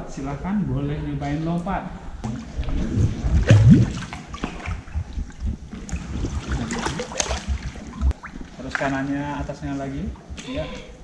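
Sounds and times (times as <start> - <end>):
water splashing and trickling: 2.2 - 11.0.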